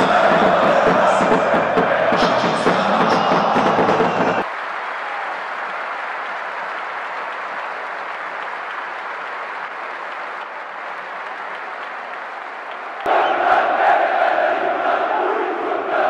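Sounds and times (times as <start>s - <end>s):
stadium crowd applauding: 0.0s - 15.2s.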